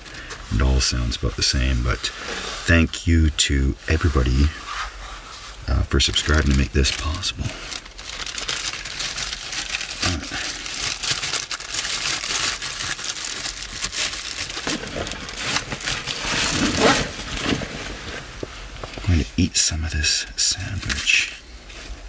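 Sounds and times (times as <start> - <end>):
plastic bag crinkling: 5.8 - 18.3.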